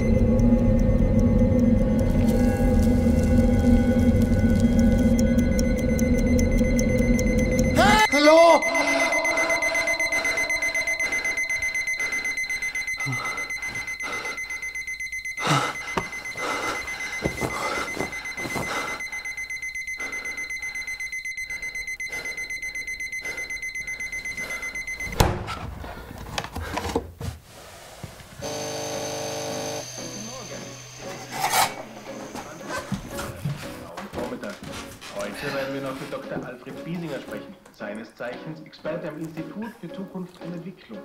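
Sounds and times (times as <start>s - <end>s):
alarm clock beeping: 0.0s - 25.5s, 28.4s - 34.4s
person breathing: 8.7s - 14.8s, 15.4s - 25.0s.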